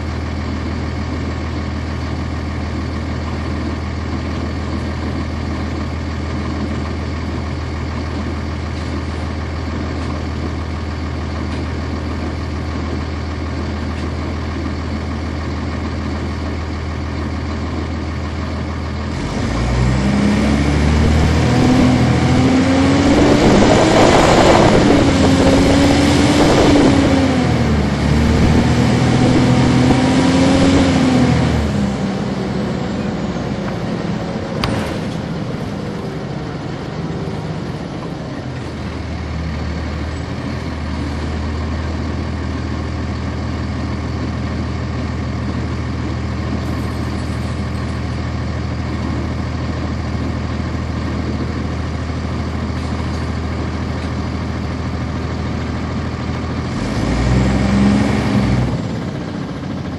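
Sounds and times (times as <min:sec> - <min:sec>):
bus engine droning whine: 0:00.0 - 0:59.9
diesel engine idling: 0:00.0 - 0:59.9
sharp click: 0:34.6 - 0:35.2.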